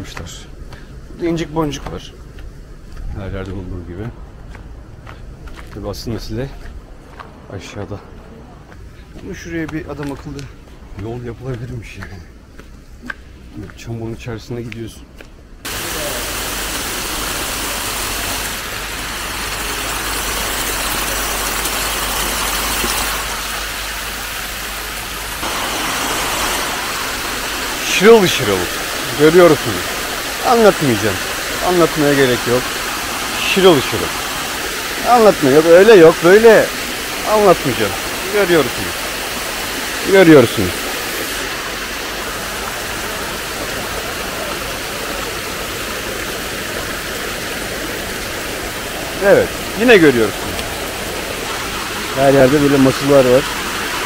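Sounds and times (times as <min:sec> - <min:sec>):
waterfall rushing: 0:15.7 - 0:54.0.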